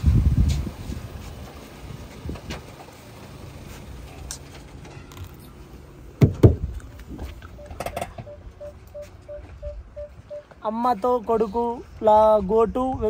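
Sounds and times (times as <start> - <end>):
heavy thumps: 6.2 - 6.8
car warning chime beeping: 7.2 - 10.7.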